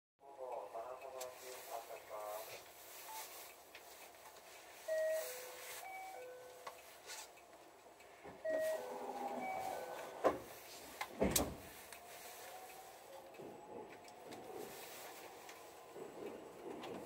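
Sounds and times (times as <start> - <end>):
electronic platform chime: 4.9 - 6.7, 8.4 - 10.2.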